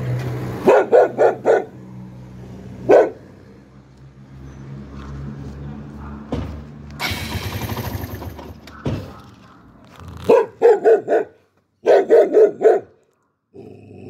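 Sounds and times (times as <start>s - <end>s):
dog barking: 0.6s - 1.8s, 2.8s - 3.3s, 5.9s - 6.4s, 8.7s - 13.4s.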